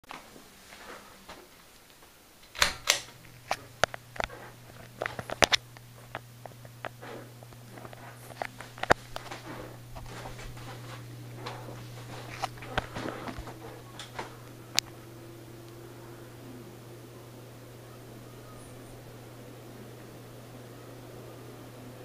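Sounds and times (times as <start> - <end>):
fan air noise: 0.1 - 22.0
fan motor hum: 0.1 - 22.0.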